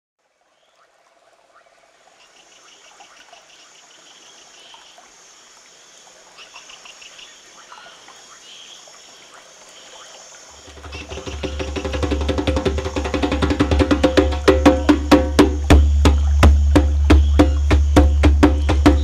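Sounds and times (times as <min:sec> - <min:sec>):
frogs and insects chirping: 0:00.2 - 0:19.0
trickling water: 0:00.2 - 0:19.0
music with low drum beat: 0:10.7 - 0:19.0.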